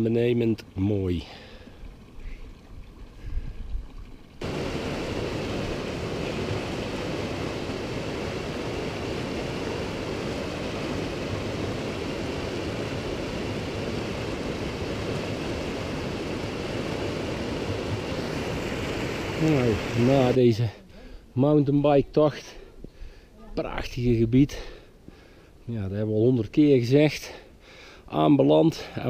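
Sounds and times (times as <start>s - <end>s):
mountain river rushing over stones: 4.4s - 20.7s.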